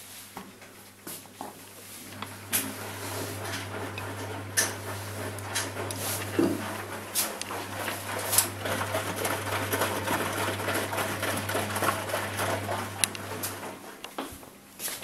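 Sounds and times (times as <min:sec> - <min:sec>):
laundry sloshing in drum: 0:02.0 - 0:13.9
washing machine motor humming: 0:02.0 - 0:14.0.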